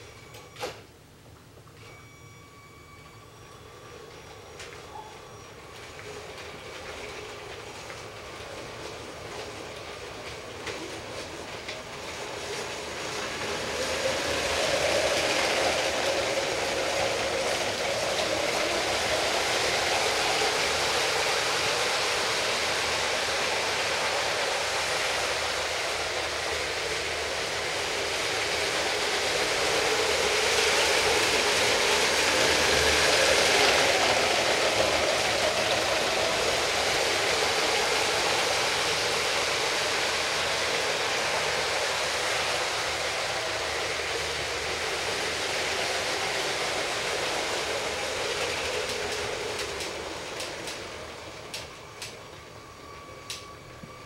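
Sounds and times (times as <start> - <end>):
toy train motor whirring: 13.4 - 50.9.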